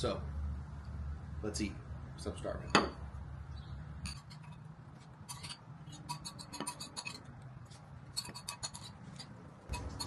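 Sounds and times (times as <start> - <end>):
utensil clinking against bowl: 5.3 - 7.2, 9.7 - 10.0.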